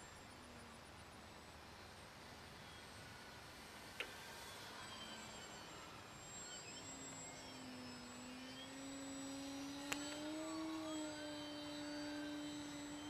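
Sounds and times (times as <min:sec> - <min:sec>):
distant electric motor hum: 0:00.0 - 0:13.0.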